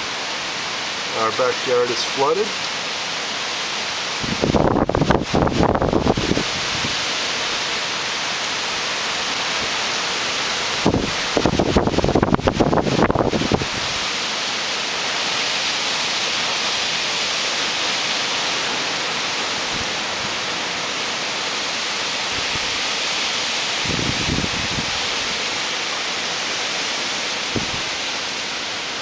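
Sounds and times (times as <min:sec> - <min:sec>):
heavy rain hissing: 0:00.0 - 0:29.0
wind buffeting microphone: 0:04.2 - 0:07.0, 0:10.7 - 0:14.1, 0:23.8 - 0:25.4, 0:27.5 - 0:28.0.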